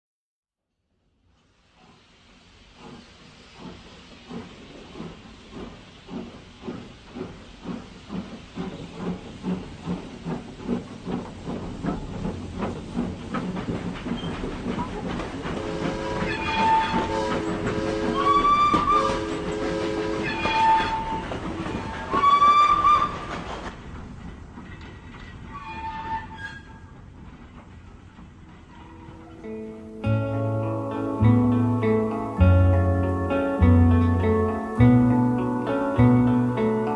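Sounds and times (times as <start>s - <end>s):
steam locomotive chuffing: 1.6s - 36.9s
train whistle blasts: 15.6s - 21.2s.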